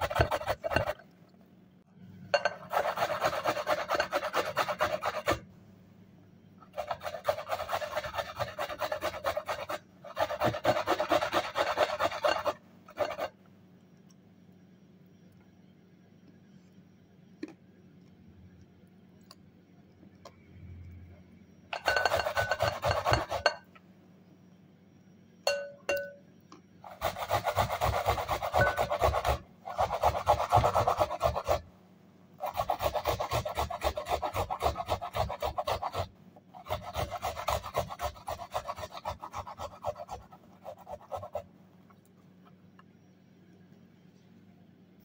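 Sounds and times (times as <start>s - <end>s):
onion rasping on metal grater: 0.0s - 1.0s, 2.6s - 5.4s, 6.7s - 13.3s, 21.9s - 23.5s, 26.9s - 31.6s, 32.4s - 41.4s.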